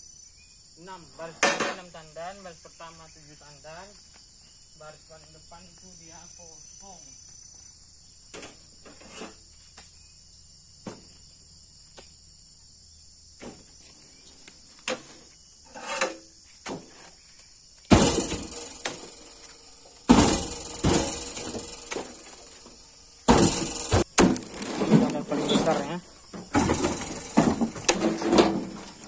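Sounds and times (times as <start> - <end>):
insects chirring: 0.0 - 29.0
heavy thuds of fruit bunches: 10.8 - 11.2, 13.4 - 13.8, 16.6 - 17.1, 17.9 - 19.4, 20.0 - 29.0.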